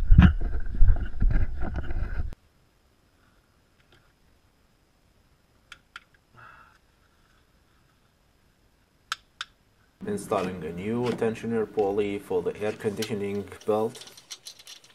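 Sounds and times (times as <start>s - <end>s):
hand tools clicking on metal: 12.7s - 14.9s.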